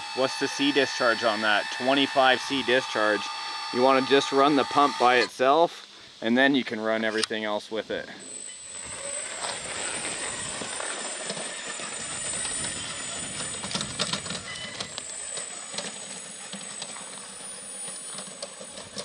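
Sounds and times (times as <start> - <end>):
electric motor whine: 0.0 - 5.3, 8.2 - 19.0
tyres crunching on gravel: 8.8 - 19.0.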